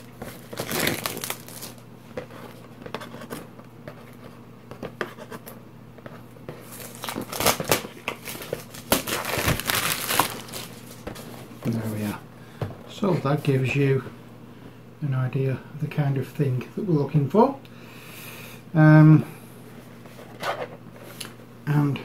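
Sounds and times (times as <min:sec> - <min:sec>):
plastic wrap crinkling: 0:00.0 - 0:01.8, 0:06.6 - 0:11.2.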